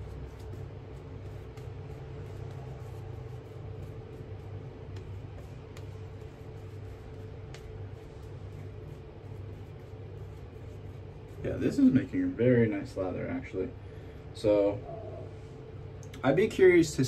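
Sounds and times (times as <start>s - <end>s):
shaving brush swishing lather: 0.0s - 12.2s
low background hum: 0.0s - 17.0s.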